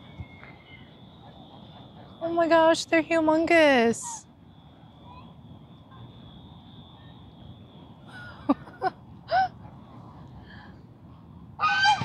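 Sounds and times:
faint high-pitched tone: 4.7 - 8.0
geese honking: 11.6 - 12.0.

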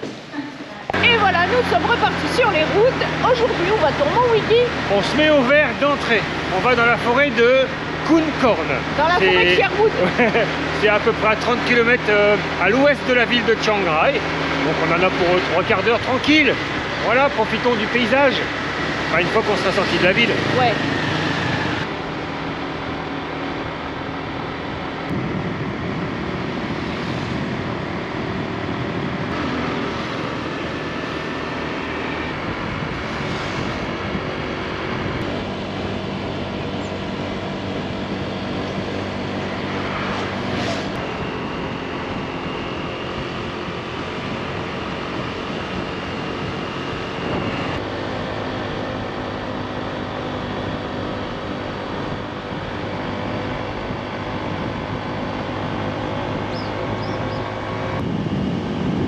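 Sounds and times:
scooter engine droning: 0.0 - 59.0
wind and road noise: 0.0 - 59.0.

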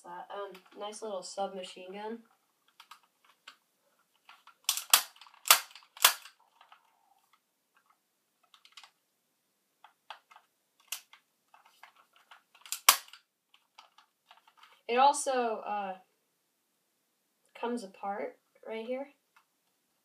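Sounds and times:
gun handling clicks: 4.3 - 6.8, 9.8 - 13.2.

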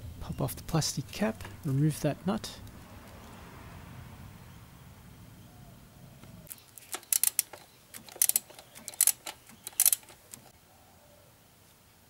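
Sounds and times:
ratcheting spanner clicking: 6.5 - 10.5.

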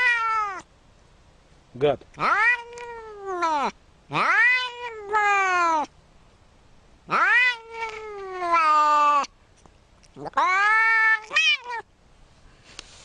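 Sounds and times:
cat meowing: 0.0 - 0.7, 2.1 - 5.9, 7.1 - 9.3, 10.1 - 11.9.

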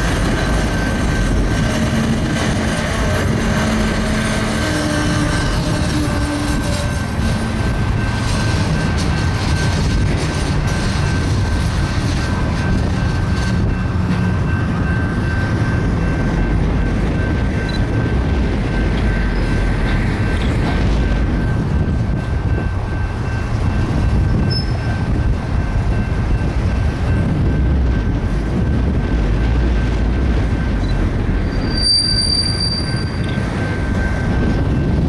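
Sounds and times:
steel train wheels rumbling on rail: 0.0 - 35.0
train clicks and clanks: 0.0 - 35.0.

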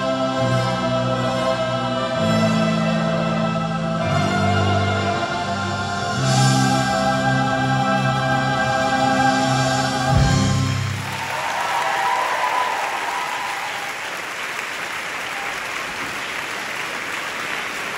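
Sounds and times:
choir and solo singer: 0.0 - 11.3
audience applauding: 10.7 - 17.9.

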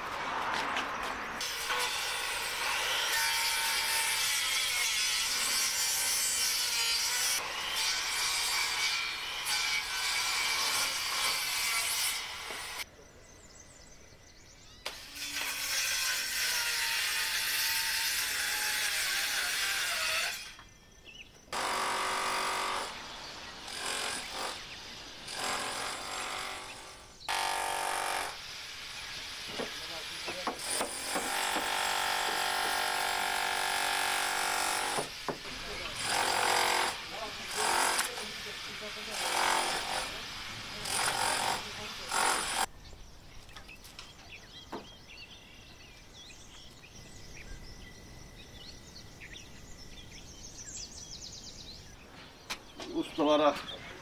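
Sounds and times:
power tool cutting wood: 14.9 - 20.6, 21.6 - 24.7, 25.3 - 42.7.

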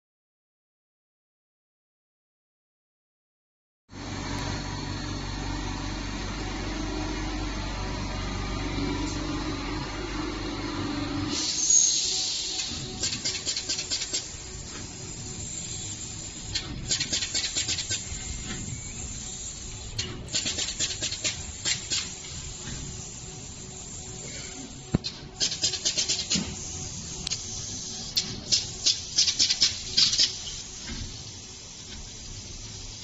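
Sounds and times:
steady low hum: 4.0 - 33.0
rapid mechanical clicking: 12.5 - 14.9, 15.6 - 18.6, 19.6 - 22.9, 25.0 - 26.6, 28.1 - 30.6.

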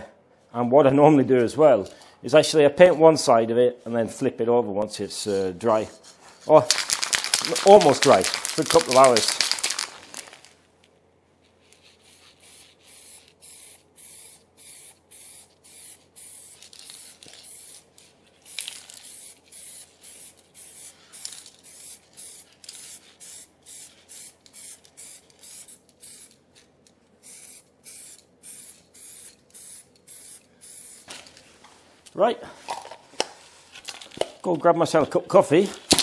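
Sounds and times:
spray can hissing: 6.7 - 10.4, 12.0 - 17.9, 18.5 - 26.4, 27.2 - 31.1.

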